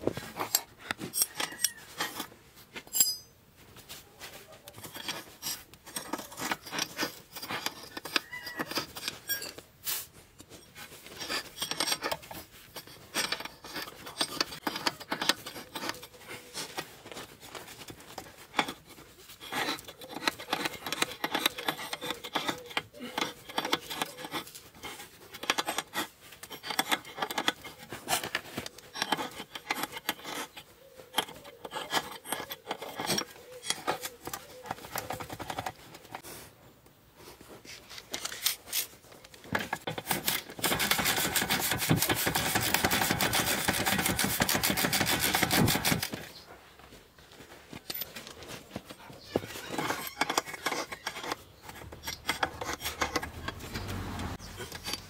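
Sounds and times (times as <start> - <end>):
metal tool clinking: 0.5 - 2.3, 2.9 - 3.4, 9.1 - 9.6.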